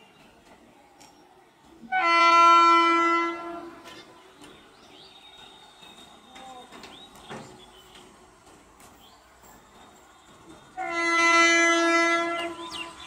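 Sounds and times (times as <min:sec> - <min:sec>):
faint approaching train: 0:00.0 - 0:13.0
locomotive horn blast: 0:01.9 - 0:03.9, 0:10.8 - 0:12.8.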